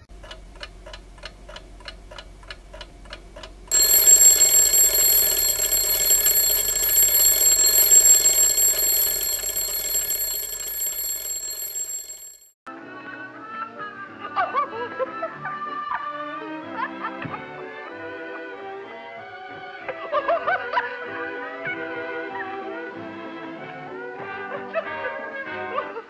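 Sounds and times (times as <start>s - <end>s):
alarm clock bell ringing: 3.7s - 12.5s.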